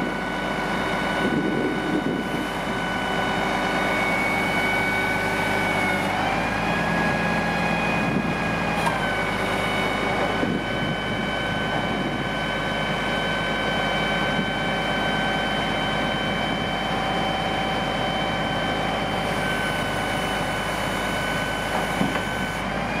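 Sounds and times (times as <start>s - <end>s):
diesel truck engine running: 0.0s - 23.0s
high hydraulic whine: 0.0s - 23.0s.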